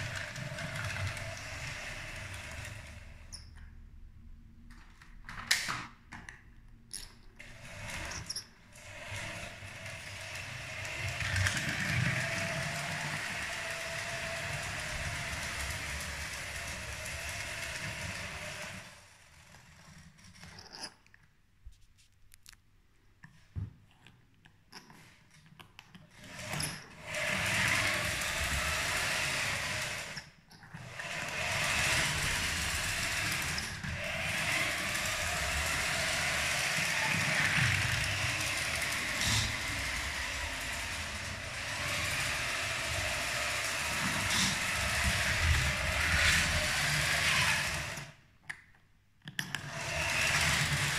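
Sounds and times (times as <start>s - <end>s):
toy train motor whirring: 0.0s - 3.8s, 6.9s - 21.0s, 26.0s - 48.3s, 49.4s - 50.9s.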